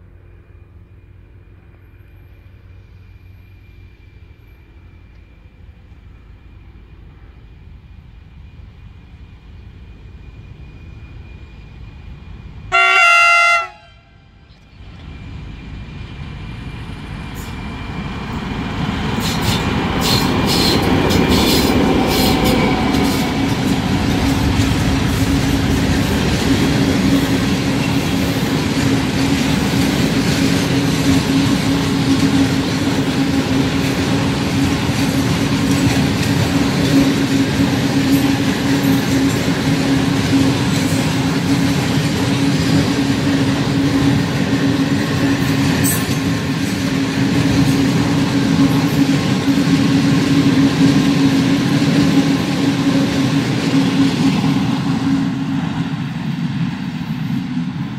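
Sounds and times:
locomotive horn blast: 0:12.7 - 0:14.4
locomotive engine running: 0:14.5 - 0:55.9
train wheels clacking: 0:16.7 - 0:56.0.

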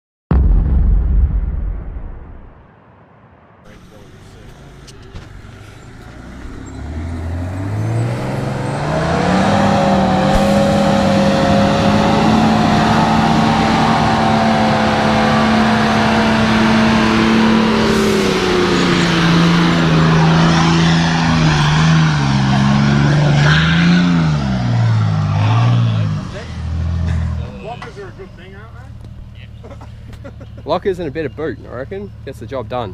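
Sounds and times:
engine revving high: 0:06.2 - 0:27.8.

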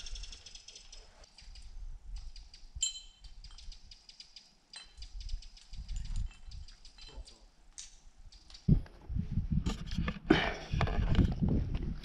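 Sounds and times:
low wind rumble: 0:08.0 - 0:12.0.

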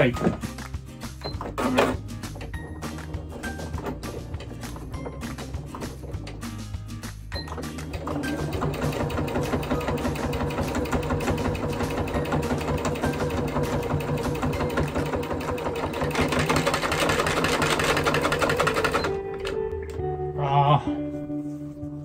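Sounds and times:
sewing machine stitching: 0:07.5 - 0:19.2.

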